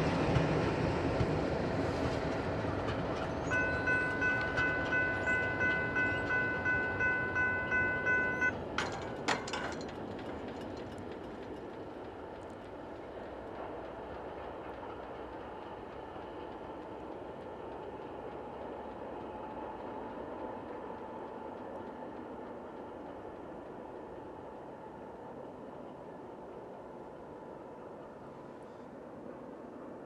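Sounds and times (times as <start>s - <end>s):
distant diesel train rumble: 0.0s - 30.0s
rumbling rail noise from train: 0.0s - 30.0s
grade-crossing bell ringing: 3.2s - 11.4s.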